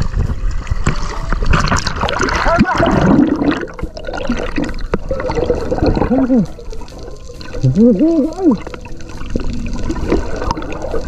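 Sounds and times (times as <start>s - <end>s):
sea water splashing and gurgling: 0.0s - 11.0s.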